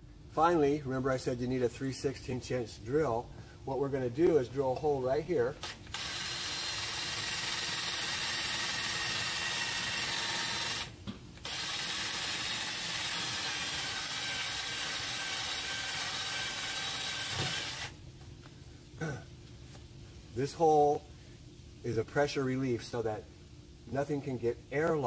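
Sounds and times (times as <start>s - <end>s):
cordless drill boring plastic pipe: 5.6s - 17.9s.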